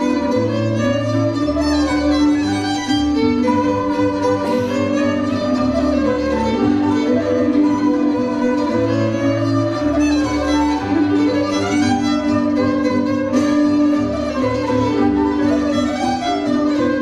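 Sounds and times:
bowed violin melody: 0.0 - 17.0
folk band playing: 0.0 - 17.0
sharp strike: 4.4 - 5.5.

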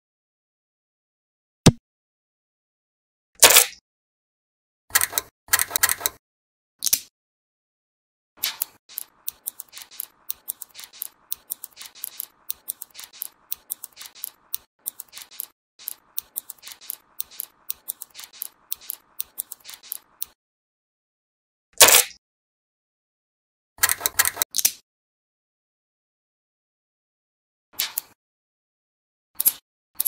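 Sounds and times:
magnetic steel balls clicking: 8.7 - 20.4.

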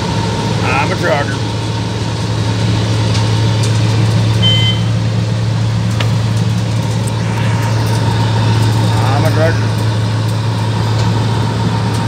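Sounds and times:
heavy diesel machinery drone: 0.0 - 12.0
brief high tone: 4.4 - 4.9.

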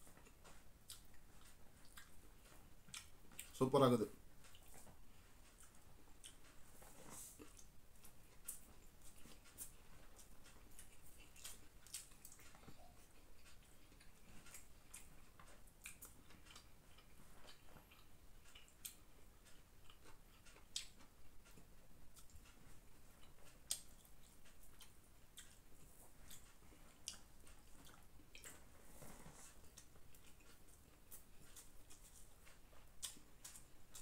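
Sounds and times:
chewing: 0.0 - 3.6, 4.4 - 34.0.

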